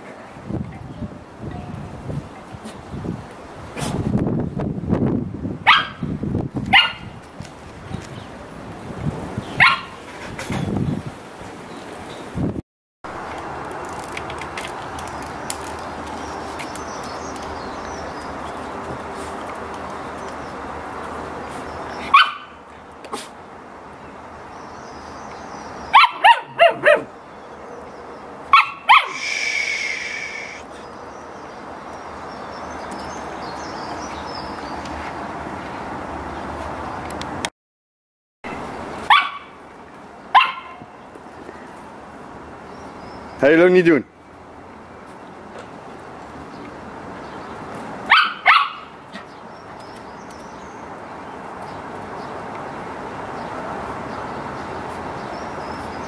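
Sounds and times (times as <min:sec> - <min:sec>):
puppy yapping barks: 0:05.7 - 0:06.0, 0:06.7 - 0:07.1, 0:09.6 - 0:10.0, 0:22.1 - 0:22.5, 0:25.9 - 0:27.1, 0:28.5 - 0:29.2, 0:39.1 - 0:39.6, 0:40.3 - 0:40.9, 0:48.1 - 0:49.0.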